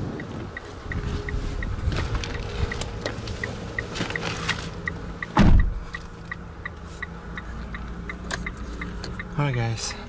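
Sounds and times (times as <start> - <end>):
car chime ticking: 0.0 - 10.0
car door thud: 5.3 - 5.8.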